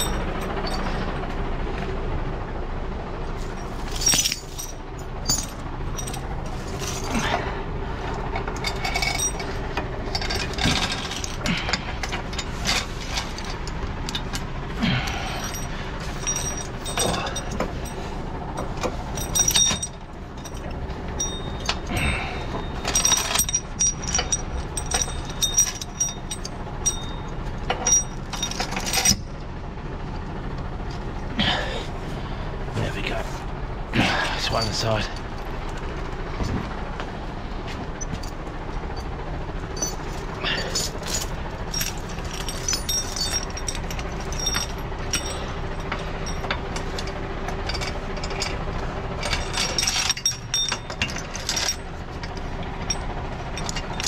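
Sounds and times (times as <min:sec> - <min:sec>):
steel chain clinking and rattling: 0:00.0 - 0:01.3, 0:03.2 - 0:29.4, 0:34.2 - 0:36.8, 0:37.7 - 0:54.0
low engine hum: 0:00.0 - 0:54.0.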